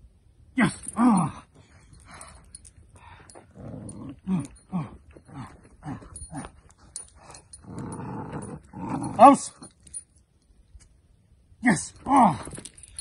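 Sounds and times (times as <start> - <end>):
puppy growling: 3.4 - 6.6, 7.3 - 9.2.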